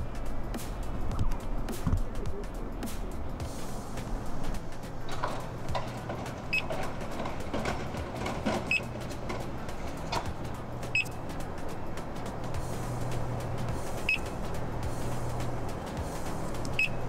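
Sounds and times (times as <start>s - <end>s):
short high beeps: 10.9s - 11.2s, 16.8s - 17.0s.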